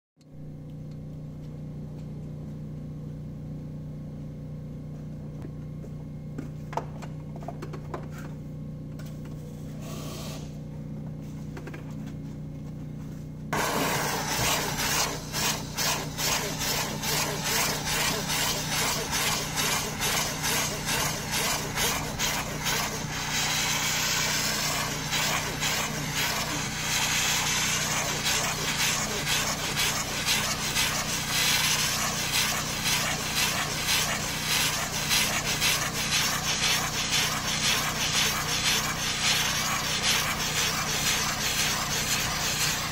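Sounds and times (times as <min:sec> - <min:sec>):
brush scrubbing upholstery: 0:13.6 - 0:42.9
steam cleaner hissing: 0:13.6 - 0:42.9.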